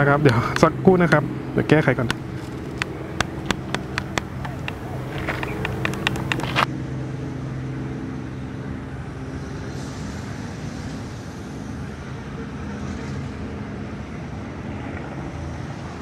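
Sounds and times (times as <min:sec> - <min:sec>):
engine drone: 0:00.0 - 0:16.0
sharp clicks: 0:02.0 - 0:06.7.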